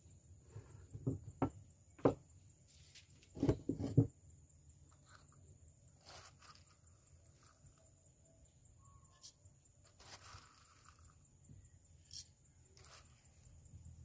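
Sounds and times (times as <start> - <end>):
wooden box knocking on table: 0.9 - 2.2
soft handling sounds: 2.6 - 3.9, 4.9 - 8.0.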